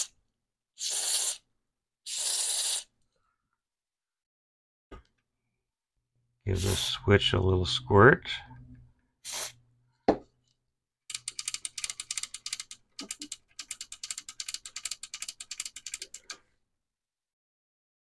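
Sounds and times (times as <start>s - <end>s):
knock: 10.1s - 10.3s.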